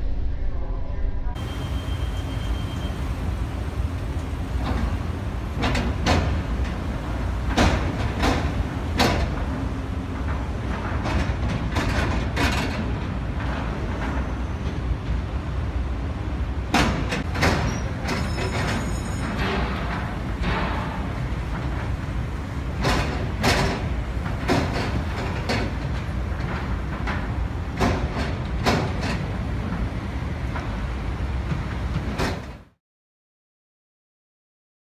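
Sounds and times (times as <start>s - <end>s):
low rumble: 0.0s - 2.3s
tyres clanking over steel ramp: 1.4s - 15.3s, 16.6s - 32.8s.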